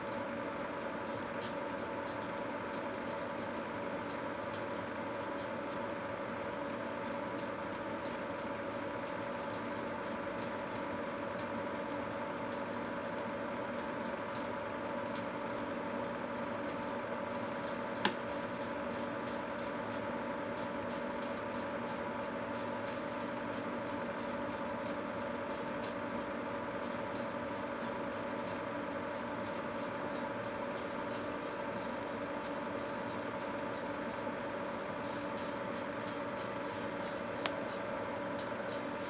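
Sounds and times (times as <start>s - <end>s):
microwave oven humming: 0.0s - 39.0s
fire crackling and ticking: 0.8s - 39.0s.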